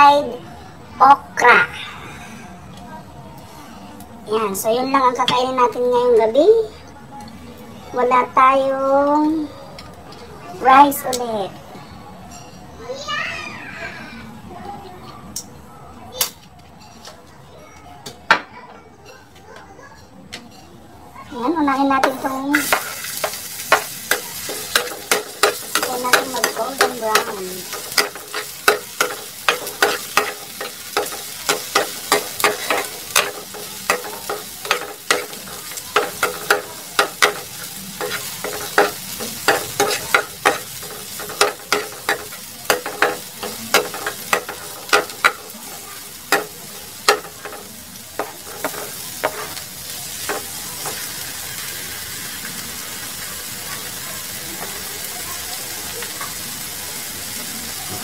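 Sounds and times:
garlic sizzling in oil: 0:21.3 - 0:58.0
metal tongs clicking on pan: 0:22.0 - 0:45.6.

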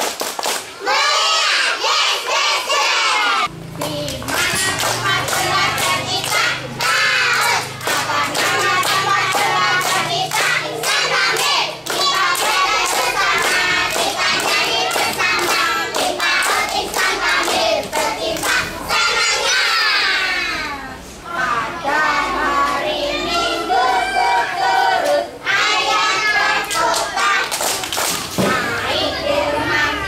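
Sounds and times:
children and adults singing: 0:00.7 - 0:30.0
hand clapping: 0:03.8 - 0:18.6, 0:26.7 - 0:28.6.

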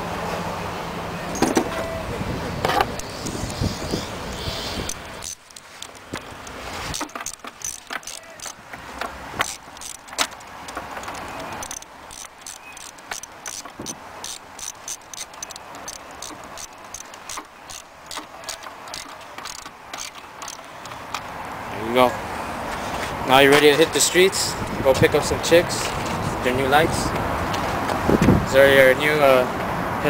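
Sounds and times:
ratchet clicking: 0:03.0 - 0:08.6, 0:09.4 - 0:21.2.

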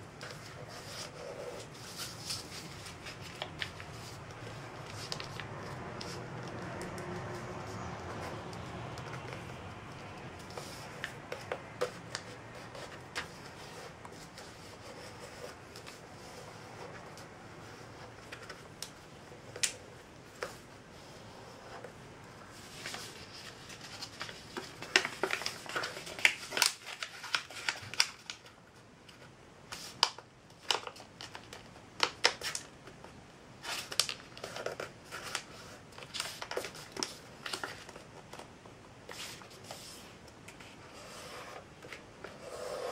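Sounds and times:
paper being folded and creased: 0:00.0 - 0:32.7, 0:33.6 - 0:38.5.

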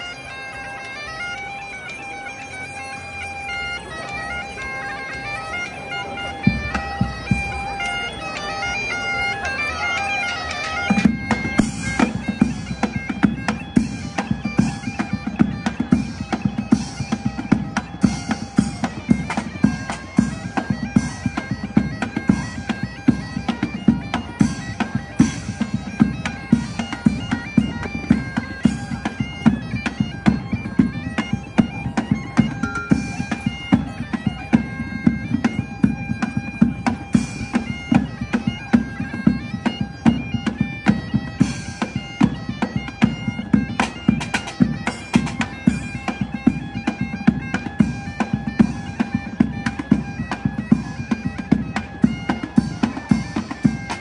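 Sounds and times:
bagpipe melody over drone: 0:00.0 - 0:54.0
drums beating dance rhythm: 0:32.3 - 0:33.4.

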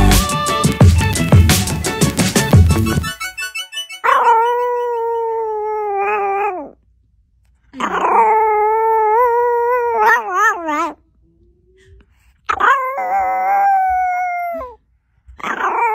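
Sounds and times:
dog howling: 0:04.0 - 0:06.8, 0:07.8 - 0:11.0, 0:12.5 - 0:14.8, 0:15.4 - 0:15.9.

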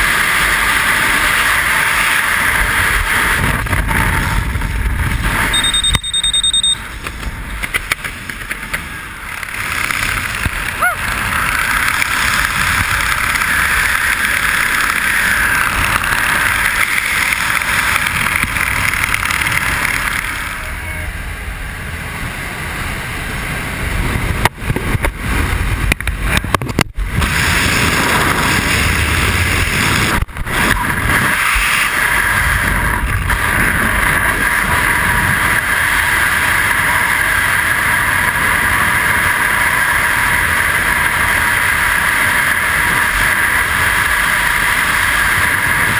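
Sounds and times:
aircraft noise: 0:00.0 - 0:45.9
wind rushing: 0:21.7 - 0:36.7.

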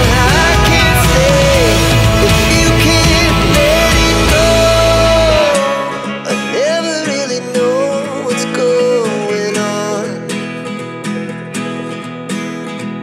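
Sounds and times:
acoustic guitar music: 0:00.0 - 0:13.0.

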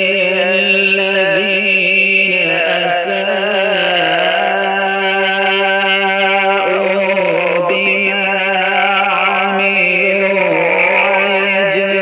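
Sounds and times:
person reciting melodically: 0:00.0 - 0:12.0.

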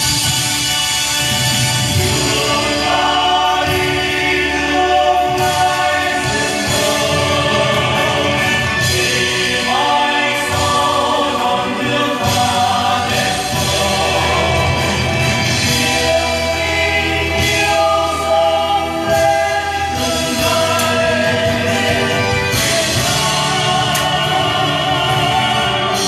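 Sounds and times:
choir singing: 0:00.0 - 0:26.0
instrumental accompaniment: 0:00.0 - 0:26.0.

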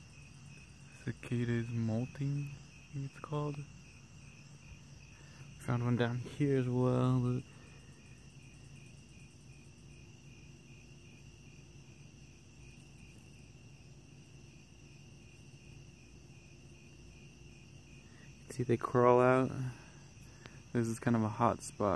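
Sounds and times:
insects chirping: 0:00.0 - 0:21.9.

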